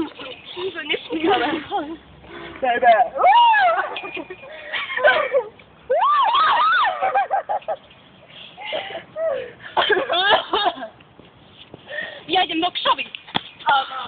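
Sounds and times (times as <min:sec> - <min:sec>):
young women laughing and shrieking: 0:03.1 - 0:07.9, 0:08.6 - 0:10.9.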